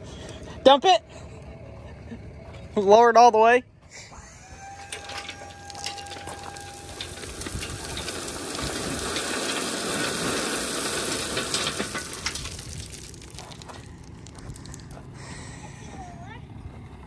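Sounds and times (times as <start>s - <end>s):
crushed rock sliding out: 5.0s - 15.0s.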